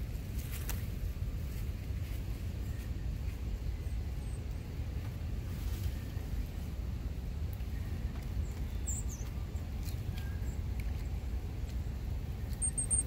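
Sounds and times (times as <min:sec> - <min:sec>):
steady low rumble: 0:00.0 - 0:13.0
high songbird calls: 0:07.6 - 0:13.0.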